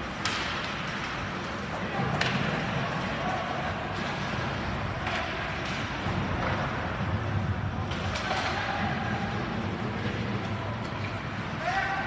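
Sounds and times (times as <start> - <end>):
low rink hum: 0.0 - 12.0
sticks hitting puck: 0.0 - 12.0
faint shout: 11.5 - 12.0.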